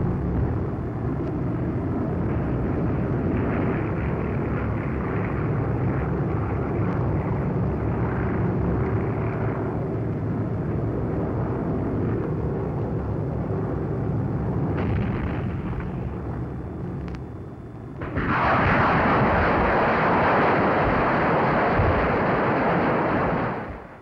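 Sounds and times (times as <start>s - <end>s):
propeller plane engines droning: 0.0s - 24.0s
explosions: 14.7s - 17.2s, 18.0s - 24.0s.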